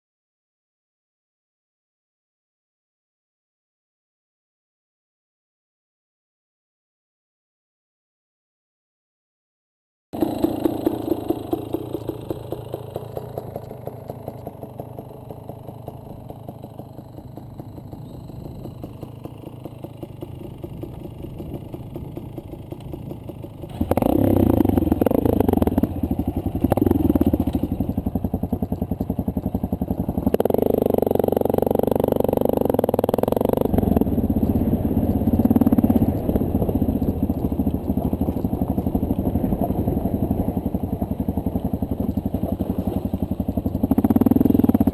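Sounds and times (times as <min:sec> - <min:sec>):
motorcycle engine idling and revving: 0:10.2 - 0:44.9.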